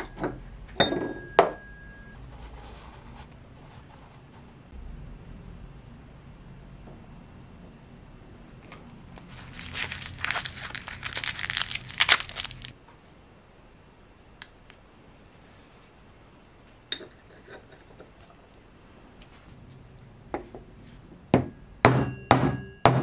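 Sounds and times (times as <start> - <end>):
packaging tearing and crinkling: 9.2 - 12.8.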